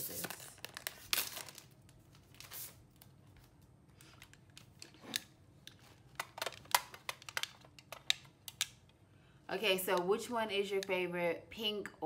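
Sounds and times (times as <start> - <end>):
plastic rustling: 0.0 - 8.7
plastic cases clicking: 4.2 - 8.8.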